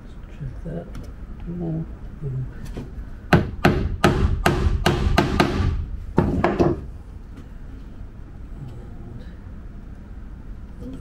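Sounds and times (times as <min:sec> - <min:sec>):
hammer driving a nail into wood: 0:03.3 - 0:06.9.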